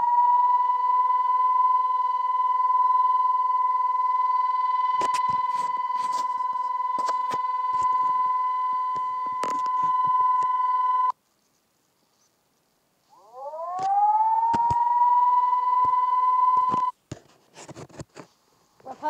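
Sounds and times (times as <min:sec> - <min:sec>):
high-pitched alarm siren tone: 0:00.0 - 0:11.1, 0:13.1 - 0:16.9.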